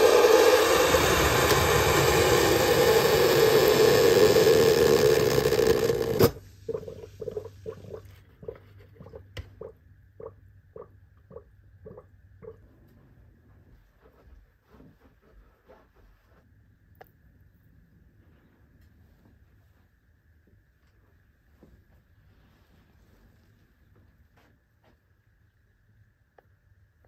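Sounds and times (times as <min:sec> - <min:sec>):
hot water dispenser pump humming: 0:00.0 - 0:12.6.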